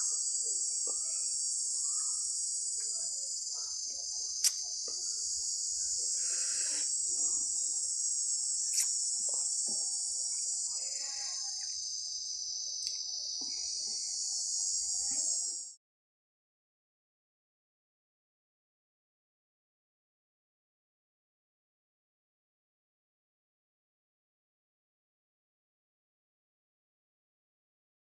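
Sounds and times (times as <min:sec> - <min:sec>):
high-pitched insect chorus: 0:00.0 - 0:15.8.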